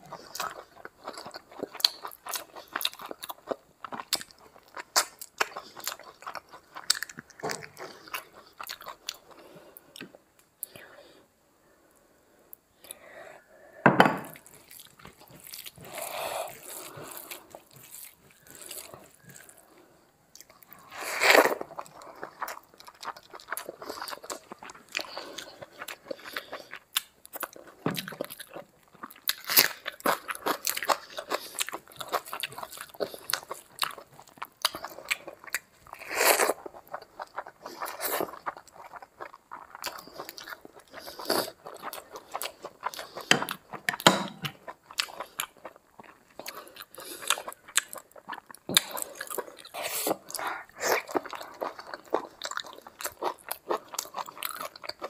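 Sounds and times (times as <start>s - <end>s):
wet chewing: 20.3s - 55.0s.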